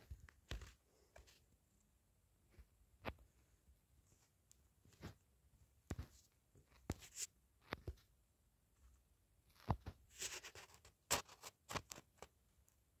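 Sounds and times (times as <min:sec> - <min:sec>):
scratchy rustle: 0:09.5 - 0:12.3.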